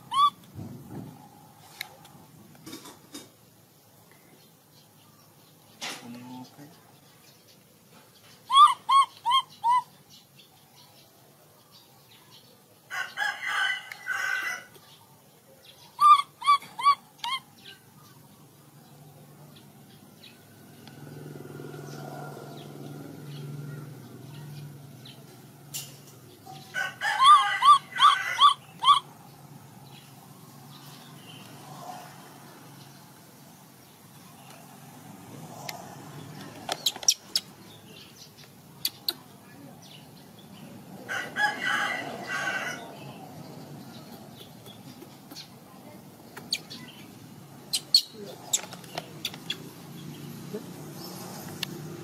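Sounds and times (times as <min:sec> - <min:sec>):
animal chirping: 0:00.0 - 0:00.5, 0:08.4 - 0:10.1, 0:15.7 - 0:18.2, 0:26.6 - 0:29.2, 0:36.7 - 0:37.6, 0:46.3 - 0:49.8.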